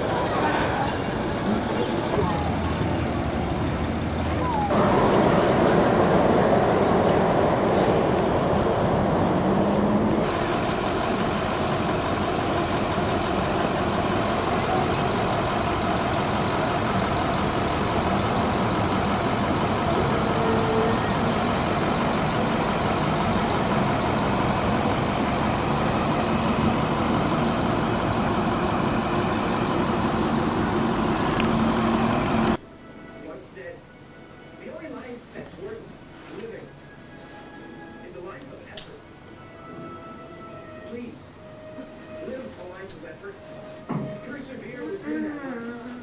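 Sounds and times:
large vehicle engine droning: 0.0s - 32.6s.

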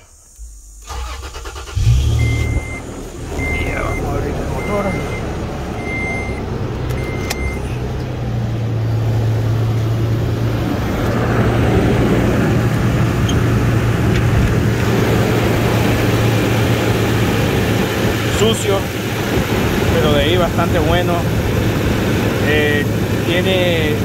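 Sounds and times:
car engine idling: 0.0s - 24.0s
dashboard warning chime: 2.2s - 7.7s.

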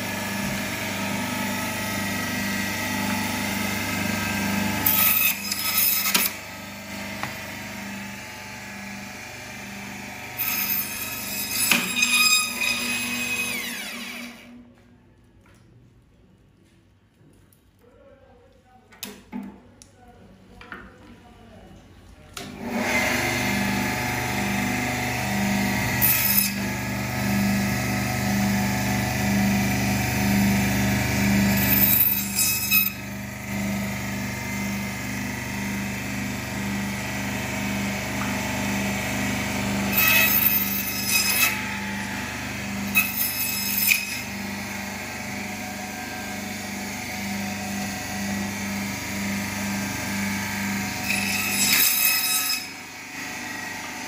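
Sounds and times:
band saw motor hum: 0.0s - 14.6s, 22.6s - 54.0s
saw blade cutting meat and bone: 3.7s - 6.4s, 10.4s - 14.5s, 22.7s - 34.9s, 38.5s - 45.4s, 46.1s - 54.0s.

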